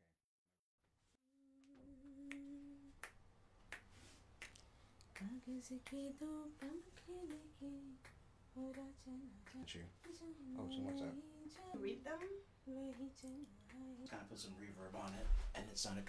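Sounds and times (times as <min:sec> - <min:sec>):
person humming softly: 0:01.5 - 0:03.1, 0:05.2 - 0:14.3
sharp clicks like finger snaps: 0:02.3 - 0:10.2, 0:10.8 - 0:14.0.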